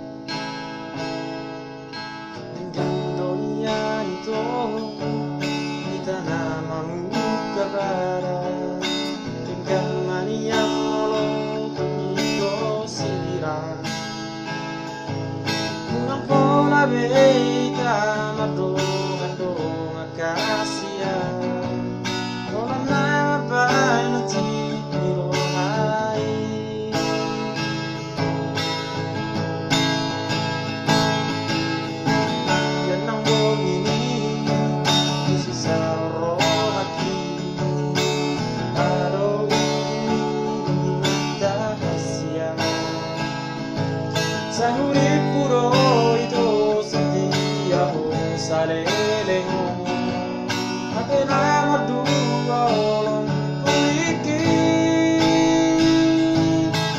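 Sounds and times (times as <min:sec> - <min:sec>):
acoustic guitar strumming: 0:00.0 - 0:56.9
man singing: 0:02.4 - 0:28.3, 0:30.9 - 0:56.9.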